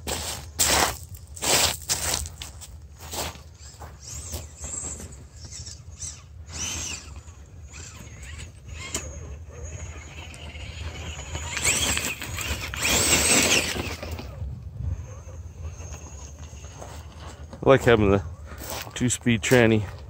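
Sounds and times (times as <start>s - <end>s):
stones crunching on gravel: 0.0s - 4.6s, 15.9s - 20.0s
toy car electric motor whine: 3.5s - 17.4s.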